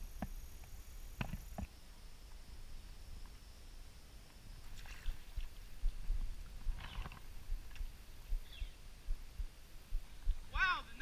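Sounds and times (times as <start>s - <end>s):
creek water sloshing and splashing: 4.6s - 7.8s.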